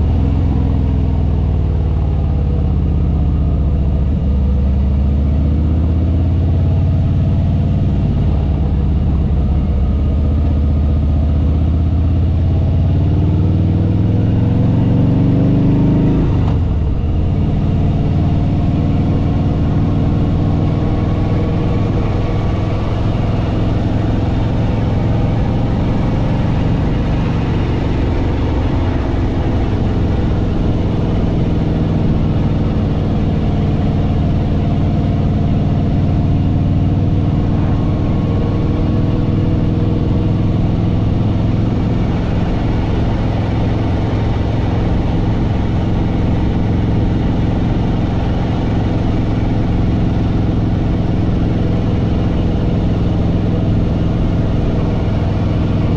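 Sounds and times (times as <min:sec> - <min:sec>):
motorcycle engine running: 0:00.0 - 0:55.9
wind rush and road noise: 0:00.0 - 0:55.9.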